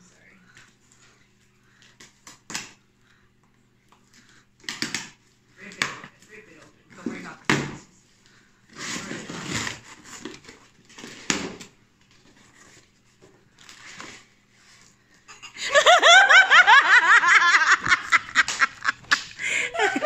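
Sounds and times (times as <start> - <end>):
packing tape ripping: 8.7 - 11.7
loud laughter: 15.3 - 20.0.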